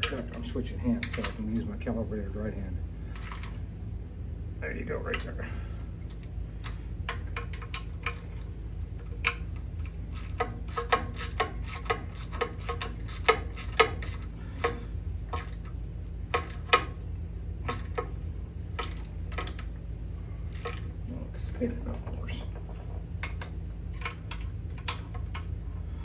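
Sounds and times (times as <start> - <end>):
steady low hum: 0.0 - 26.0
wrench clicking on steel bolts: 6.6 - 8.5, 9.1 - 15.7, 16.3 - 16.9, 17.7 - 18.0, 18.8 - 19.6, 20.5 - 20.9.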